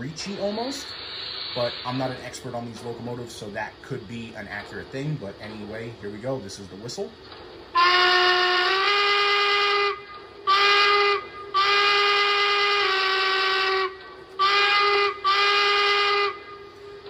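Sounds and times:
high-pitched steam whistle blasts: 0.0 - 2.9, 7.7 - 17.0.

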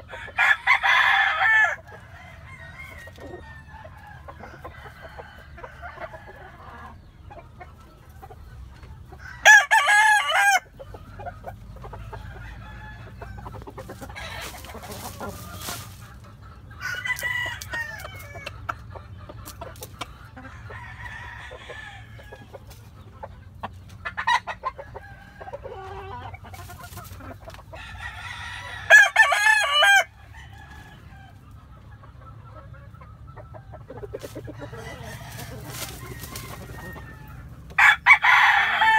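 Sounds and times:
rooster crowing: 0.0 - 6.6, 9.2 - 10.7, 12.1 - 13.6, 16.8 - 18.5, 20.7 - 22.4, 27.8 - 31.4, 34.5 - 38.9
hens clucking: 0.0 - 38.9.

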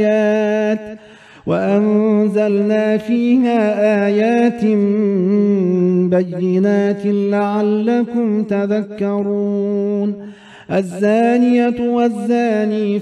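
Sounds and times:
man chanting melodically: 0.0 - 13.0
short breath: 1.0 - 1.5, 10.2 - 10.7.

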